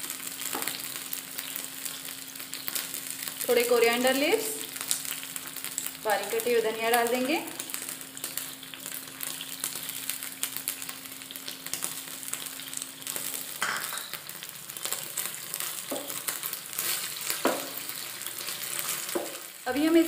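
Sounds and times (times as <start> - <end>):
sauce sizzling in frying pan: 0.0 - 20.0.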